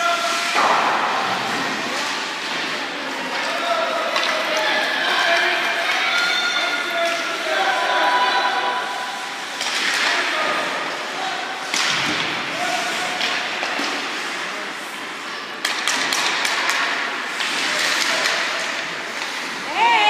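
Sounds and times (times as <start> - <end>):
clacks of sticks and puck: 0.0 - 7.8, 8.8 - 19.7.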